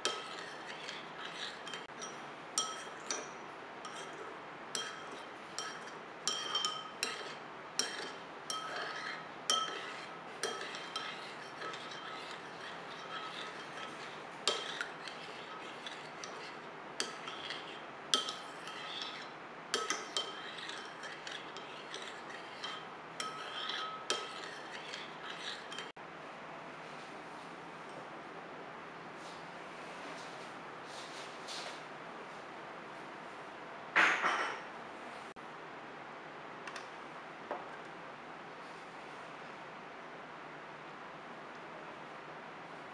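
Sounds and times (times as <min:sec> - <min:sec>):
metal spoon clinking ceramic bowl: 0:00.0 - 0:25.9.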